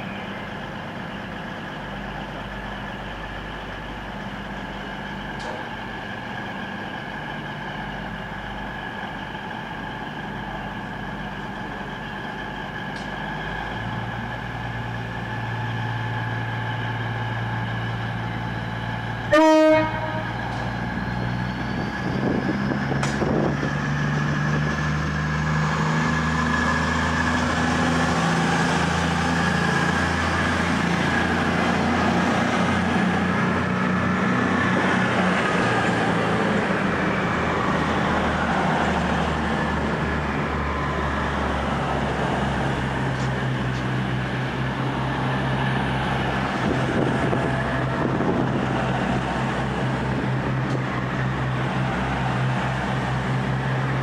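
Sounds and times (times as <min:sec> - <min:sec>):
diesel train engines droning: 0:00.0 - 0:54.0
train horn toot: 0:19.3 - 0:20.4.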